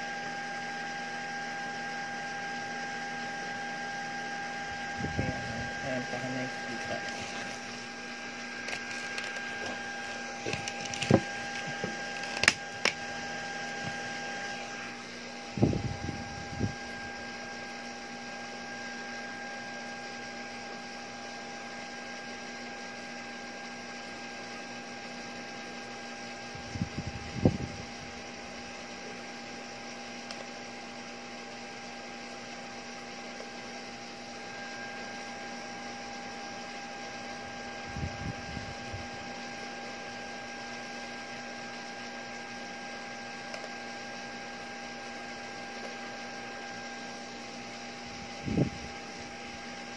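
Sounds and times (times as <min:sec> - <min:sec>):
electrical whir with high tone: 0:00.0 - 0:49.9.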